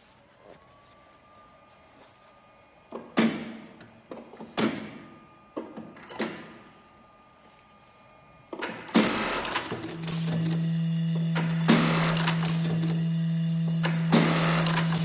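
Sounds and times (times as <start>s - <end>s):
sharp pneumatic clacks with hiss: 8.6s - 10.6s, 11.3s - 13.0s, 13.8s - 15.0s
sewing machine running: 8.7s - 15.0s.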